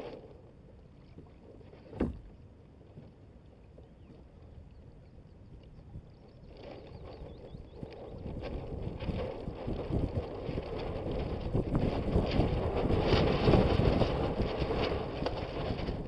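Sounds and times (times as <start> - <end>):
water rushing along hull: 0.0 - 16.0
wind buffeting microphone: 4.7 - 16.0.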